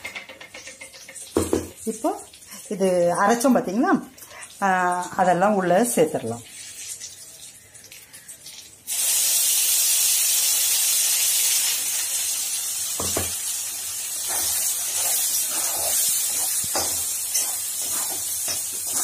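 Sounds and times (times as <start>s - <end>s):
paste sizzling in hot oil: 6.4s - 19.0s
spoon knocking against pan: 13.0s - 13.4s.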